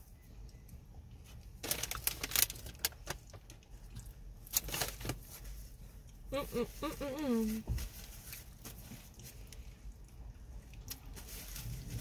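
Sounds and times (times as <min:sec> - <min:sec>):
paper food container rustling: 0:01.2 - 0:03.5.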